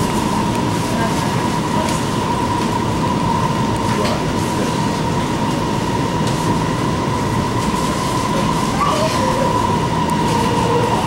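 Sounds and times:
metro wheels rumbling on rail: 0.0s - 11.0s.

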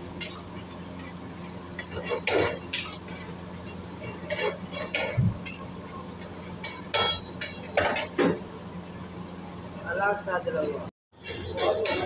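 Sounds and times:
low kitchen hum: 0.0s - 12.0s.

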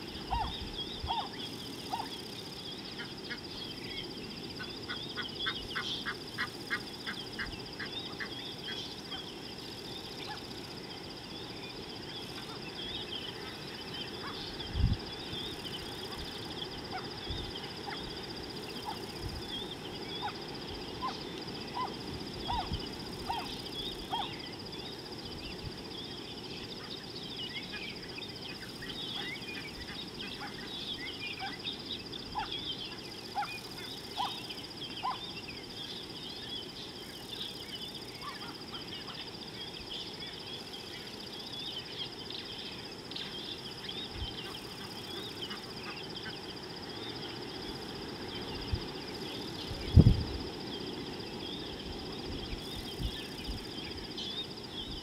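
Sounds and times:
birds chirping and calling: 0.0s - 47.6s
low wind rumble: 48.3s - 54.1s.

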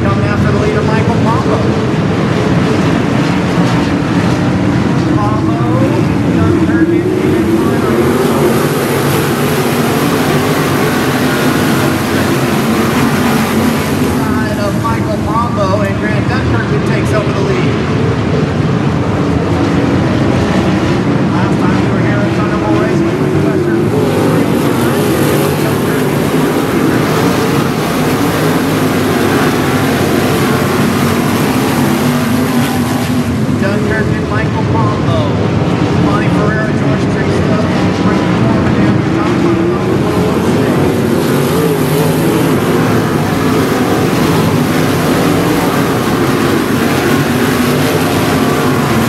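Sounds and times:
racing car engines droning: 0.0s - 49.0s.

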